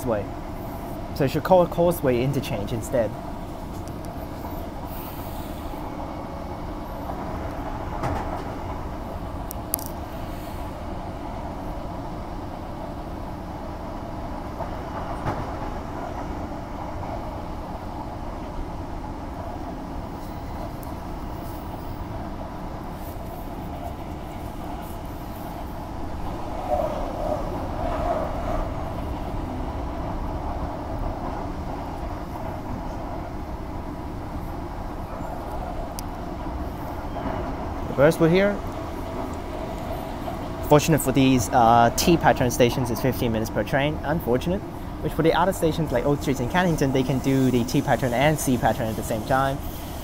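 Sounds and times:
train wheels rumbling on rail: 0:00.0 - 0:50.0.

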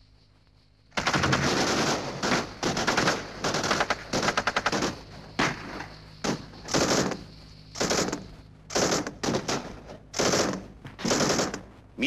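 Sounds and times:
automatic gunfire bursts: 0:01.0 - 0:05.6, 0:06.2 - 0:07.2, 0:07.8 - 0:11.7.

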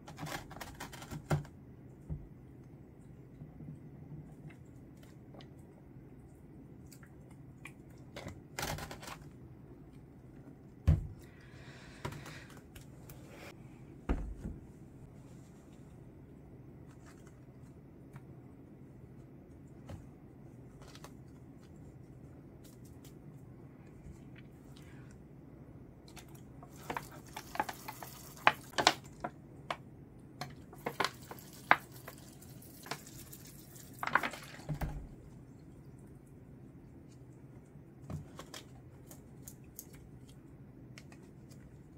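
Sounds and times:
low thump: 0:14.1 - 0:14.7.

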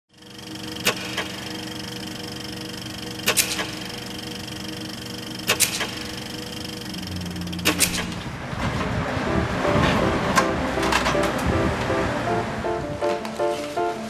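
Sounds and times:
hum of held tones: 0:00.1 - 0:13.0
sharp clicks: 0:03.2 - 0:03.9, 0:05.4 - 0:06.1
deep tone: 0:03.8 - 0:13.0.

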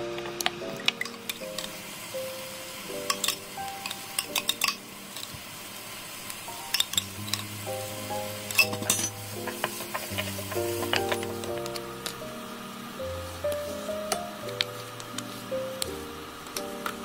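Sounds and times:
onion and garlic sizzling in butter: 0:00.0 - 0:17.0
spoon and spatula clicking on pan: 0:03.0 - 0:05.3, 0:06.6 - 0:07.5, 0:08.5 - 0:11.8.

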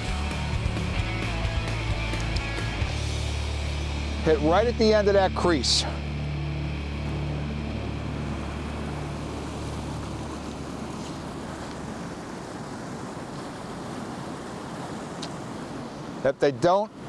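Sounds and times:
river current rushing: 0:00.0 - 0:17.0
low steady hum: 0:02.6 - 0:15.8.

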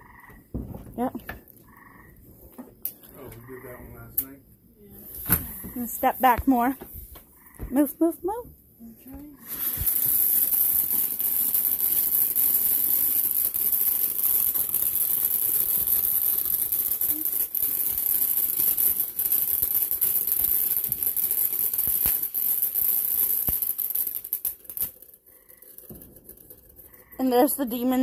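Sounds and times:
firework crackles: 0:02.3 - 0:08.4, 0:09.3 - 0:28.0
firework hiss of spraying sparks: 0:05.0 - 0:07.2, 0:09.4 - 0:25.0.

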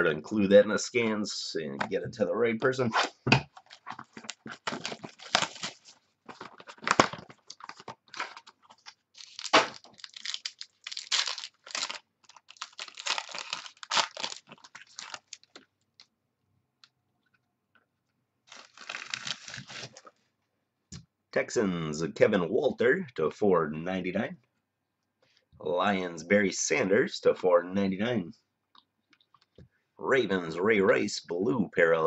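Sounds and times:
cards and wrapping crinkling: 0:03.5 - 0:15.8, 0:18.5 - 0:20.2.

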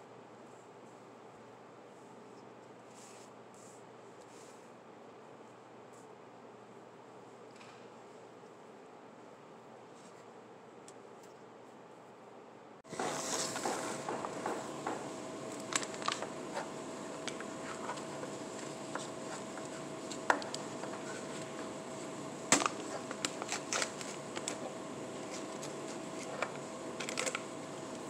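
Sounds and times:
steady hum: 0:03.4 - 0:28.0
snack can clicks and crinkles: 0:22.5 - 0:24.6.

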